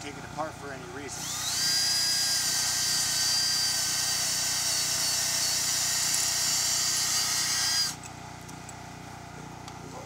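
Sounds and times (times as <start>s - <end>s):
power drill boring into wood: 1.0s - 8.1s.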